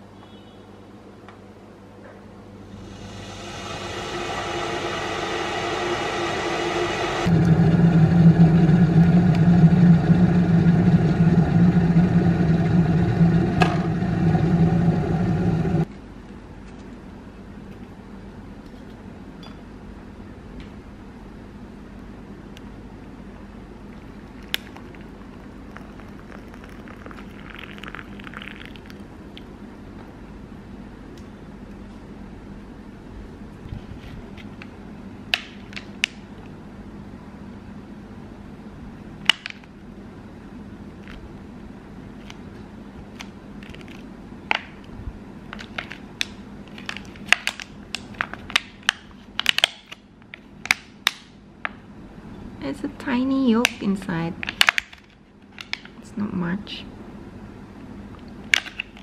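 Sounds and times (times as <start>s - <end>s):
steady low hum: 1.1s - 47.2s
water pouring into a glass mug: 24.0s - 29.2s.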